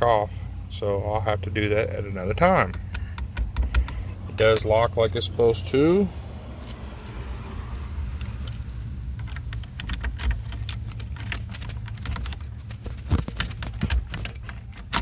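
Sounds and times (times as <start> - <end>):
keys jangling in ignition lock: 8.2 - 15.0.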